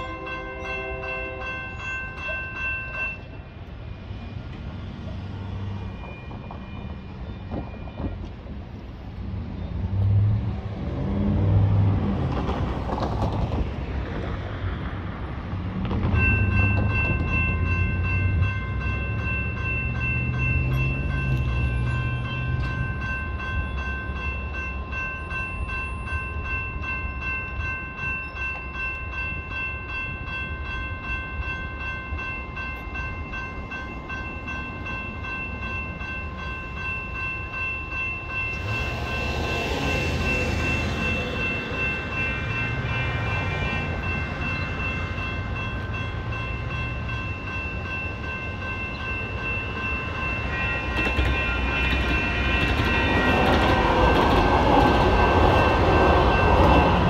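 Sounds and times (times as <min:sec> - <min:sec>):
crossing warning bells ringing: 0:00.0 - 0:57.0
train rumble: 0:00.0 - 0:57.0
car passing: 0:08.8 - 0:23.0, 0:34.0 - 0:47.4.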